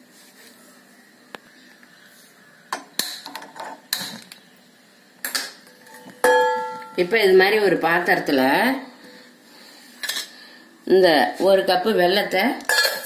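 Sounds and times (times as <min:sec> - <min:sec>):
steel pot clanging on burner grate: 0:05.2 - 0:07.0, 0:12.7 - 0:13.0
metal kitchenware clicks and knocks: 0:12.7 - 0:13.0.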